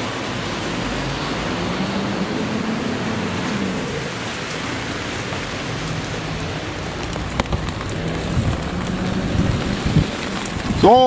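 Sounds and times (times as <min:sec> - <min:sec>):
rain on plastic canopy: 0:00.0 - 0:11.0.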